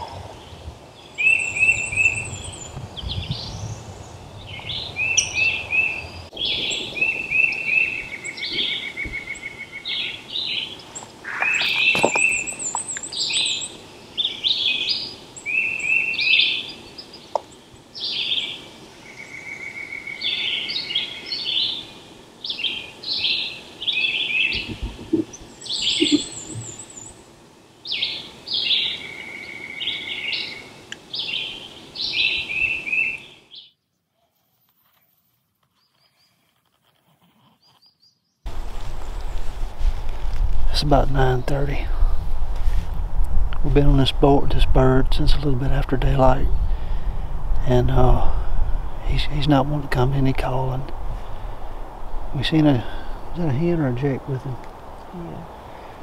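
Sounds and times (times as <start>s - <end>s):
songbirds singing: 0.0s - 34.1s, 37.4s - 39.6s, 40.6s - 42.2s, 43.5s - 56.0s
bird trills: 4.7s - 17.4s, 22.5s - 27.2s
thin high wavering bird call: 5.0s - 17.1s, 22.5s - 27.2s.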